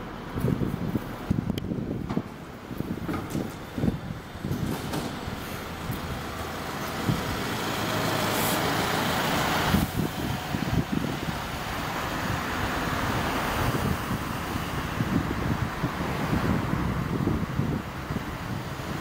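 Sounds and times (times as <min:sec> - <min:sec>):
bus engine rumble: 0:00.0 - 0:19.0
loud rushing noise: 0:02.9 - 0:17.8.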